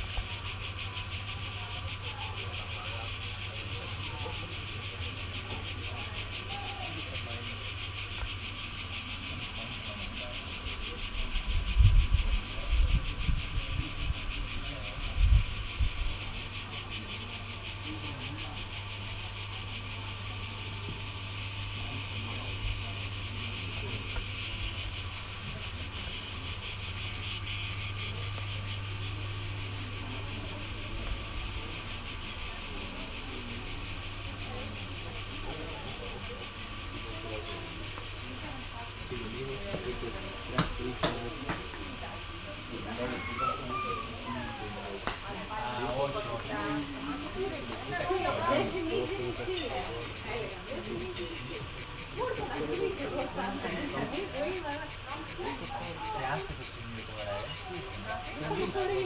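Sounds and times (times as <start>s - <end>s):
cicadas buzzing: 0.0s - 59.0s.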